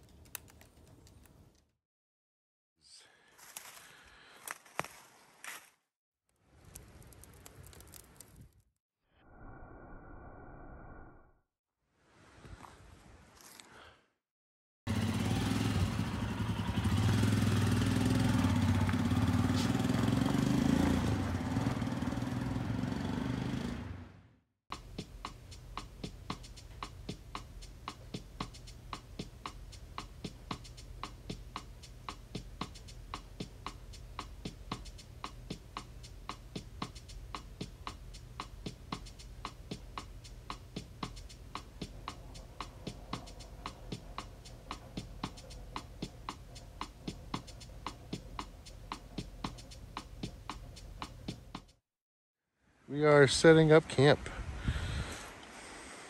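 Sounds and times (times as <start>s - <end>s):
sharp clicks: 0.0s - 1.6s
motorcycle engine running: 14.9s - 24.2s, 41.7s - 51.8s.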